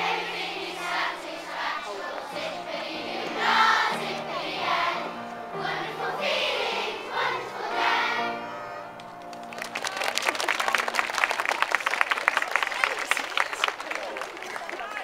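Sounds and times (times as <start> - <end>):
children singing together: 0.0 - 9.0
upright piano: 0.0 - 11.1.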